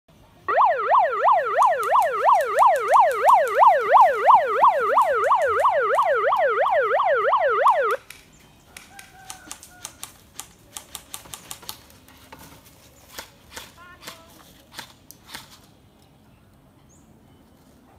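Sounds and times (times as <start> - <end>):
siren wailing in quick sweeps: 0.5 - 8.0.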